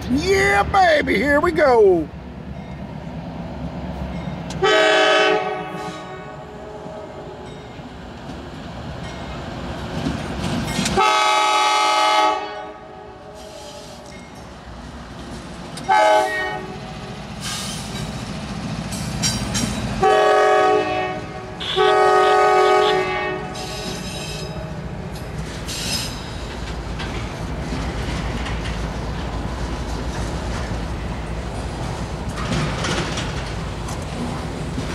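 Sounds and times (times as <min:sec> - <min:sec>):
freight train rumbling: 0:00.0 - 0:34.9
locomotive air horn blasts: 0:04.6 - 0:07.5, 0:11.0 - 0:14.0, 0:15.9 - 0:16.8, 0:20.0 - 0:24.5.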